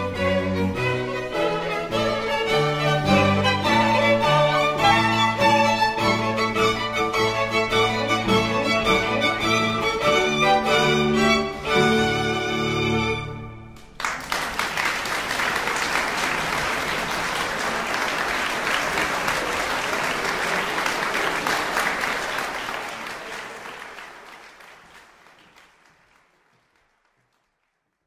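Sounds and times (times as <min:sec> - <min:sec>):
audience applauding: 0:13.8 - 0:28.0.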